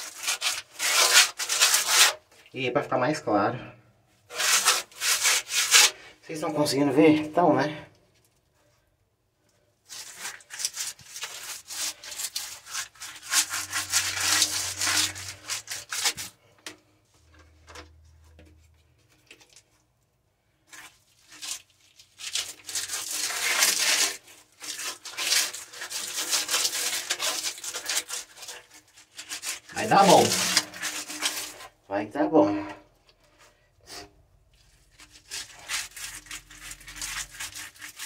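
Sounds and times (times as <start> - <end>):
brush scrubbing on wall: 0.0 - 2.2, 4.3 - 6.1, 9.8 - 16.5, 22.2 - 31.8, 33.8 - 38.0.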